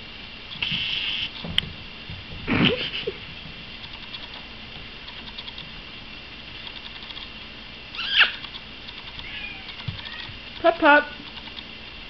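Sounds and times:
animal cry: 0:08.0 - 0:08.5, 0:09.2 - 0:10.4.

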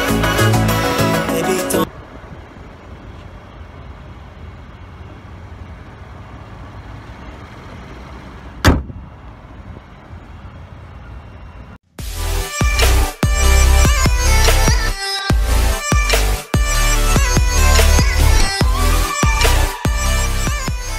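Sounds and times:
car hood slamming shut: 0:08.6 - 0:09.0
steady low rumble: 0:16.6 - 0:20.9.

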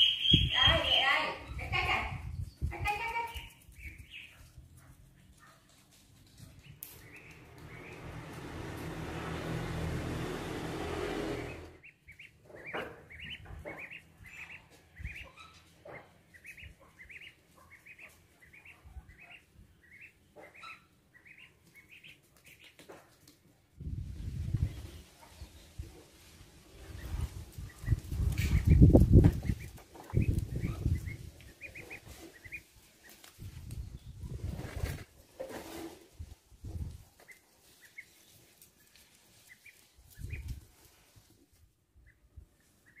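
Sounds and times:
duckling peeping: 0:00.0 - 0:04.6, 0:06.6 - 0:08.4, 0:11.3 - 0:22.9, 0:26.8 - 0:33.3, 0:37.2 - 0:40.7, 0:42.0 - 0:43.0.

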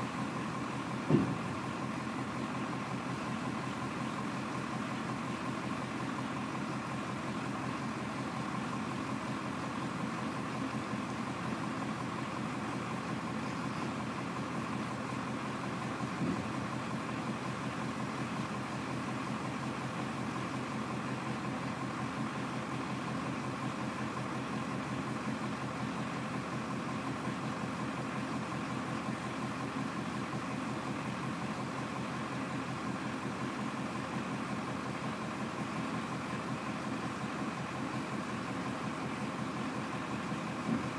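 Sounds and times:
diesel engine idling: 0:00.0 - 0:40.9
brief knock: 0:01.1 - 0:01.4.

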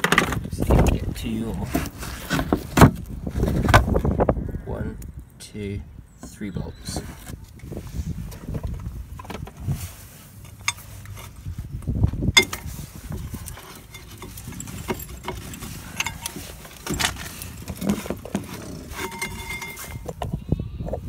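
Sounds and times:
hand tools clinking on metal: 0:13.2 - 0:20.2.

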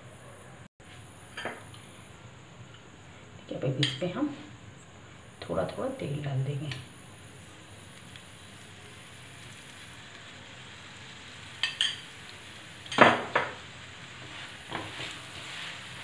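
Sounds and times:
faint oil sizzle: 0:00.9 - 0:16.0
spatula knocking and scraping pan: 0:12.9 - 0:13.6, 0:14.2 - 0:16.0.

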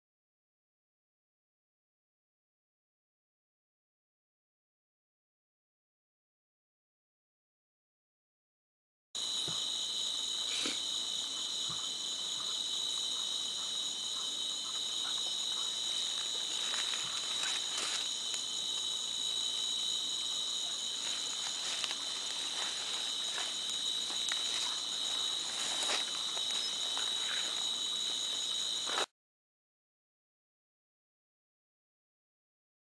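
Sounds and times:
insect chorus trilling: 0:09.2 - 0:29.1.

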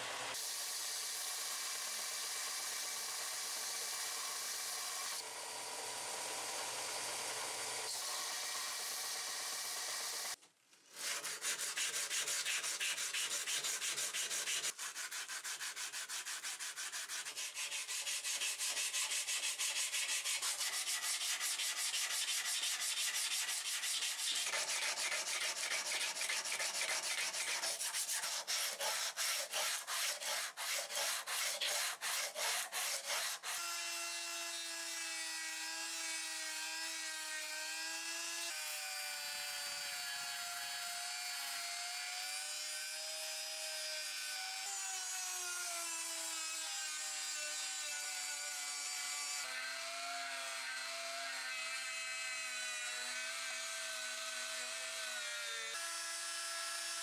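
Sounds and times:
rotary tool whine: 0:00.0 - 0:10.4
sandpaper rubbing on metal: 0:10.9 - 0:33.7.

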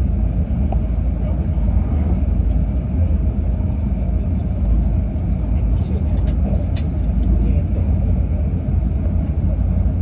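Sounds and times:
train cabin low rumble: 0:00.0 - 0:10.0.

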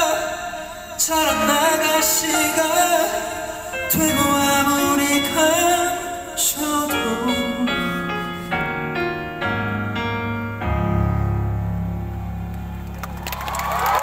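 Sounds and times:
slow piano chords: 0:00.0 - 0:14.0.

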